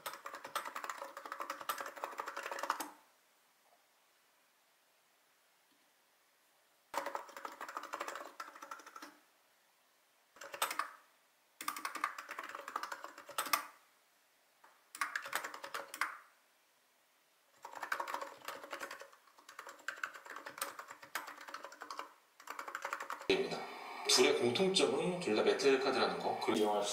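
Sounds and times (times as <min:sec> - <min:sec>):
keyboard typing: 0:00.0 - 0:03.0, 0:06.9 - 0:09.2, 0:10.3 - 0:11.0, 0:11.6 - 0:13.8, 0:14.6 - 0:16.2, 0:17.6 - 0:23.3.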